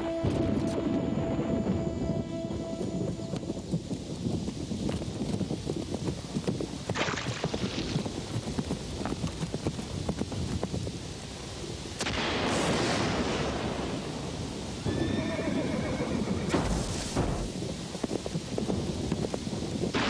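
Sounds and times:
rain rumble: 0.0 - 20.0
horse hoofbeats: 1.6 - 11.7
sharp lightning crack: 6.8 - 15.4, 16.4 - 20.0
horse whinnying: 14.8 - 16.6.

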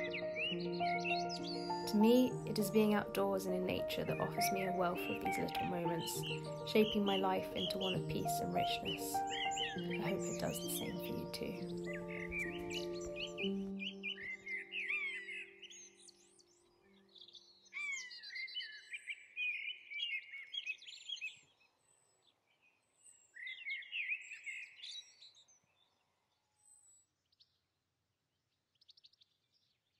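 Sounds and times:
soft low music tones: 0.0 - 16.6
songbirds singing: 0.0 - 27.6.

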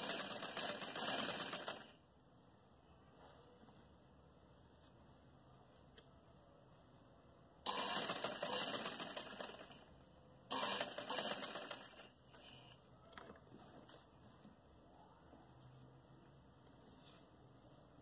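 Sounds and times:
sewing machine stitching: 0.0 - 2.0, 7.7 - 9.9, 10.5 - 12.2
faint handling noise: 2.1 - 7.2, 12.2 - 18.0.

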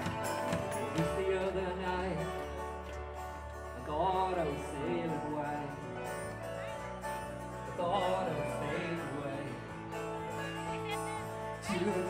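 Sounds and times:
live band playing country-folk song: 0.0 - 12.0.

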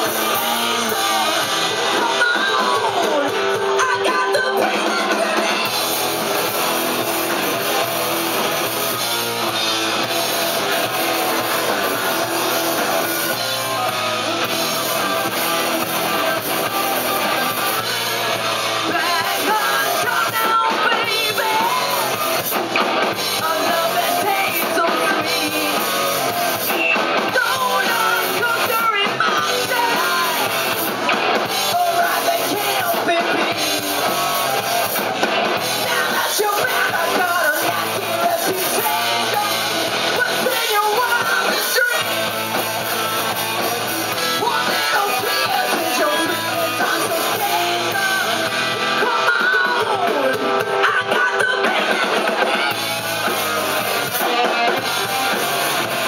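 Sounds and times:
person singing: 0.0 - 9.5, 10.5 - 56.0
bass guitar: 0.0 - 56.0
drums: 0.0 - 56.0
electric guitars: 0.0 - 56.0.

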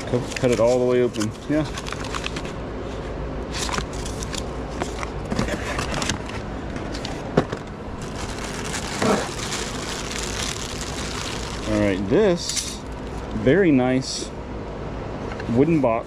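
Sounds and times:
packaging crinkling and rustling: 0.0 - 2.6, 7.5 - 12.0
low steady hum: 0.0 - 16.0
bubble wrap crackling: 8.0 - 12.0.

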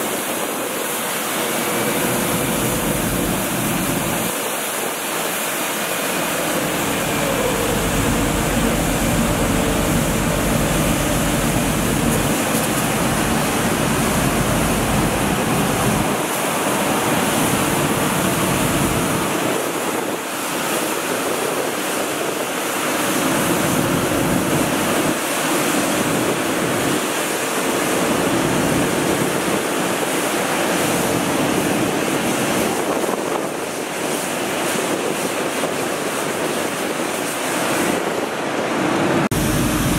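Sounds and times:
steady whine: 0.0 - 20.7, 38.8 - 39.9
street sweeper rushing: 0.0 - 39.9
low engine rumble: 6.2 - 16.2, 39.3 - 39.9.

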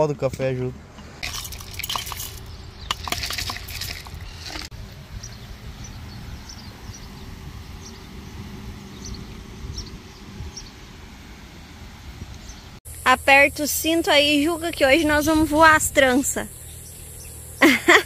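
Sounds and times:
low outdoor rumble: 0.0 - 18.0
clattering and rustling: 1.0 - 4.7.

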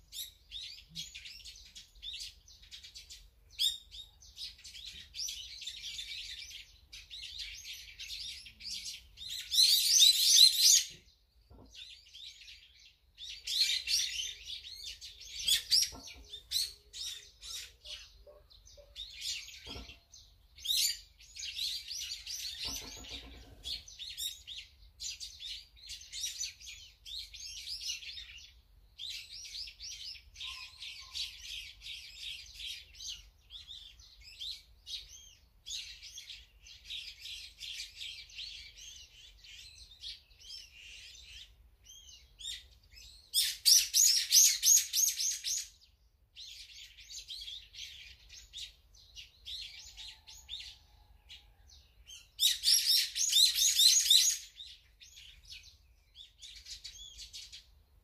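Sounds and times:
songbirds chirping: 0.0 - 58.0
lower-pitched bird call: 30.4 - 32.2.

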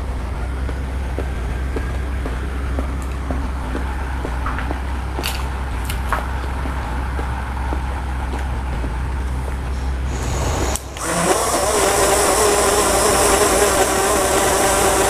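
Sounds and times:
low hum: 0.0 - 15.0
blender motor whining: 10.1 - 15.0.

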